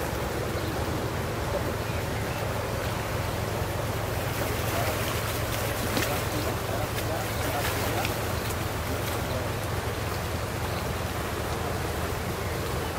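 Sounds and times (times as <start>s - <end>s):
boat engine droning: 0.0s - 12.9s
river water: 0.0s - 12.9s
wind: 0.0s - 12.9s.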